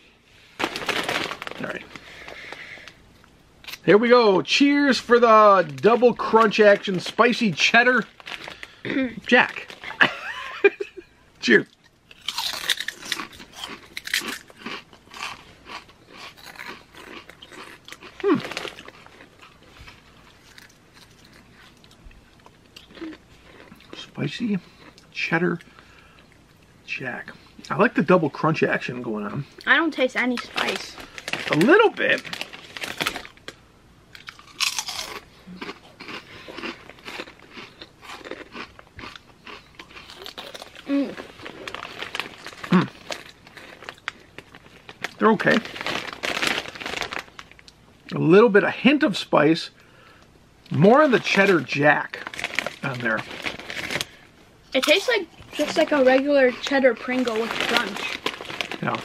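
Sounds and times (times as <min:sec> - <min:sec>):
potato chips crunching: 0:00.6 - 0:03.0, 0:04.9 - 0:10.8, 0:11.6 - 0:25.7, 0:29.6 - 0:47.8, 0:50.9 - 0:54.2, 0:54.8 - 0:59.0.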